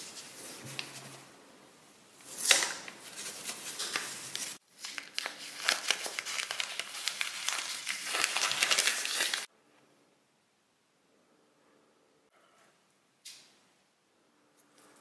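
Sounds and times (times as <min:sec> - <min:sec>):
plastic wrap crinkling: 0:02.2 - 0:09.5.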